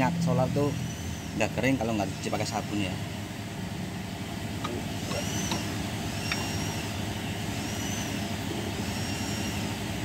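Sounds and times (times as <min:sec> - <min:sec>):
vehicle engine rumbling: 0:00.0 - 0:10.0
faint high whistling tone: 0:08.8 - 0:09.7.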